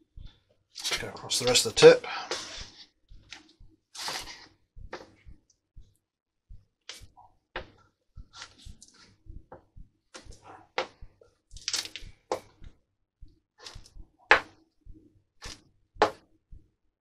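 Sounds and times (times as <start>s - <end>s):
iron scuffing over fabric: 4.0s - 4.5s.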